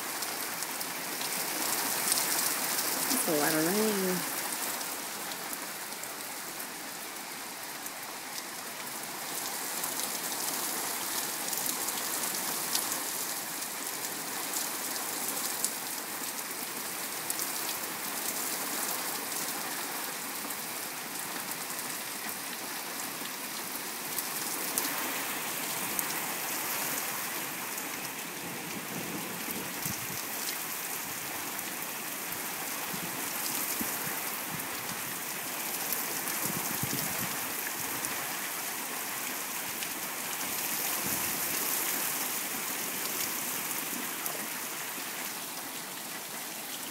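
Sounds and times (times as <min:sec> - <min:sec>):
heavy rain falling: 0:00.0 - 0:46.9.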